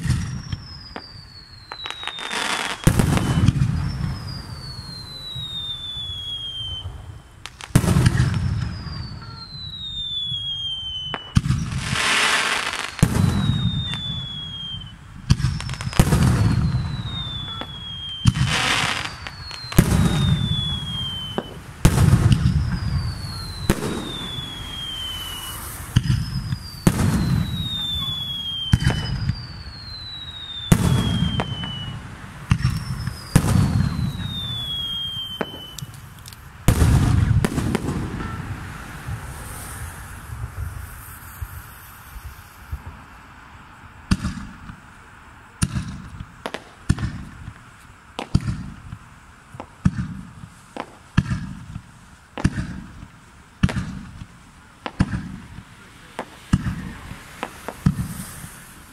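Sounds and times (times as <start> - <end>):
falling whistle: 0.0 - 7.4, 8.2 - 36.0, 38.2 - 43.1
fireworks bangs with echo: 0.0 - 43.3, 44.0 - 44.9, 45.6 - 58.9
fireworks crackling hiss: 0.0 - 58.9.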